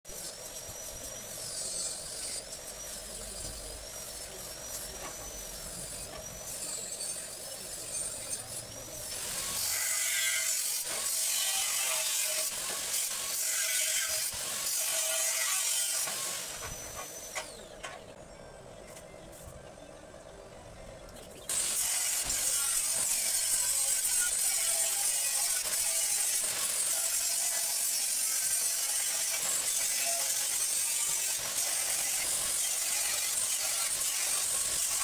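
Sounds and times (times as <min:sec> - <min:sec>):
angle grinder cutting metal: 0:00.1 - 0:18.1, 0:21.5 - 0:35.0
steady background hum: 0:16.0 - 0:27.0.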